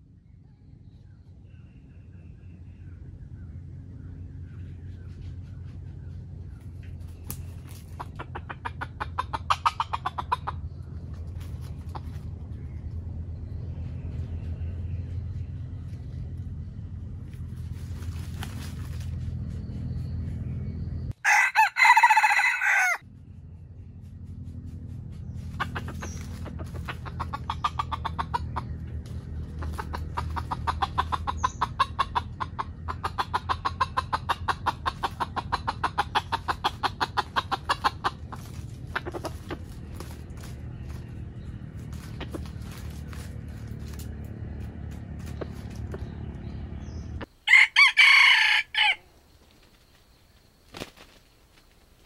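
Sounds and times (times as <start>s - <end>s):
steady low hum: 0.0s - 21.3s, 23.0s - 47.5s
rapid clucking: 4.8s - 12.9s, 24.3s - 46.5s
rooster crowing: 21.2s - 23.0s, 47.4s - 49.2s.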